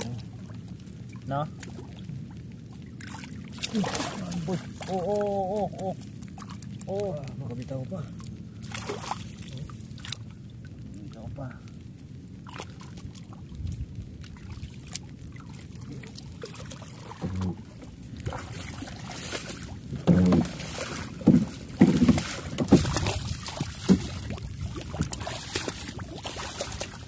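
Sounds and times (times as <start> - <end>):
water sloshing around boat hull: 0.0 - 11.2, 12.3 - 27.0.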